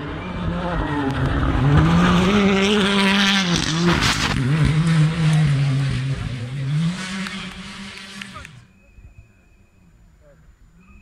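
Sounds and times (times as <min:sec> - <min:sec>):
rally car engine at high revs: 0:00.0 - 0:08.6.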